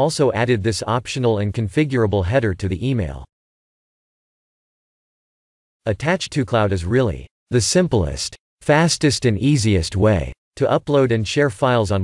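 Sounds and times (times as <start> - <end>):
narrator speaking: 0.0 - 3.3, 5.9 - 12.0.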